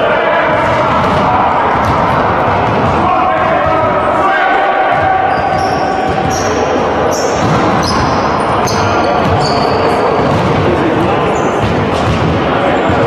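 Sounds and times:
voices in large hall: 0:00.0 - 0:13.0
sneakers squeaking on court: 0:04.9 - 0:10.6.

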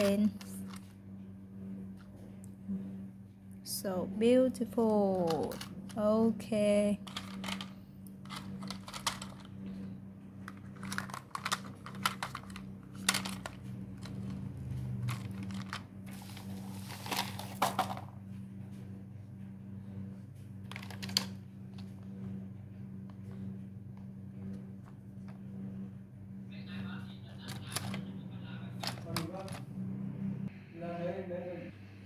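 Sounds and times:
steady low hum: 0:00.0 - 0:32.0
plastic toys clicking and clattering: 0:05.2 - 0:06.0, 0:07.0 - 0:09.5, 0:10.5 - 0:14.4, 0:15.1 - 0:15.8, 0:20.7 - 0:21.3, 0:27.5 - 0:28.0, 0:28.8 - 0:29.6.

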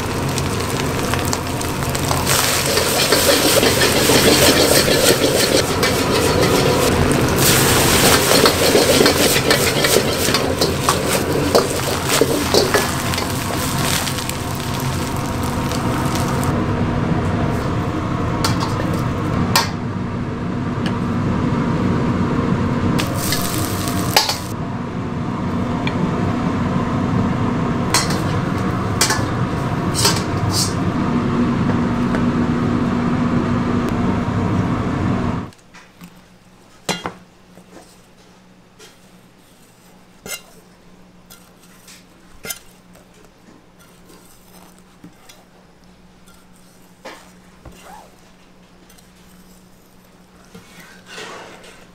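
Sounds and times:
rice sizzling: 0:00.0 - 0:16.8, 0:22.9 - 0:24.6, 0:25.4 - 0:35.5
wok burner roaring: 0:00.0 - 0:51.9
ladle clinking and scraping wok: 0:01.9 - 0:16.5, 0:23.0 - 0:24.5, 0:27.9 - 0:30.8, 0:50.4 - 0:51.9.

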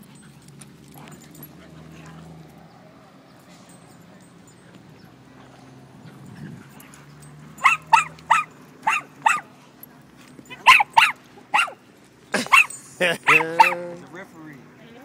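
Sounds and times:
dog barking: 0:07.5 - 0:09.5, 0:10.5 - 0:11.8, 0:12.5 - 0:13.9.

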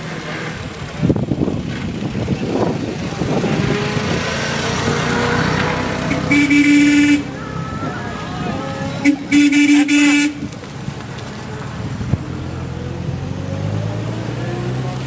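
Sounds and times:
old car engines running: 0:00.0 - 0:15.0
car horn blast: 0:06.1 - 0:07.6, 0:09.0 - 0:10.5.

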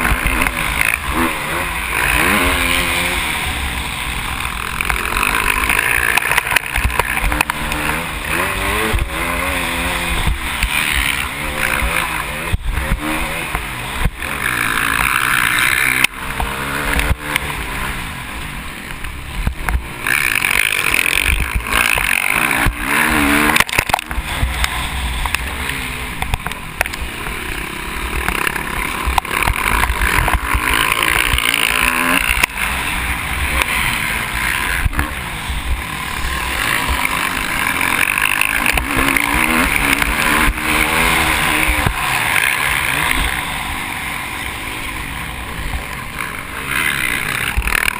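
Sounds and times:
motorcycle engine revving: 0:00.0 - 0:47.9.

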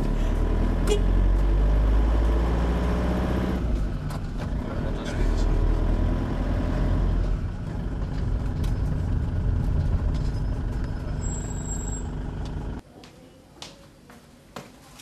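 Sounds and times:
car engine and road rumble: 0:00.0 - 0:12.8.

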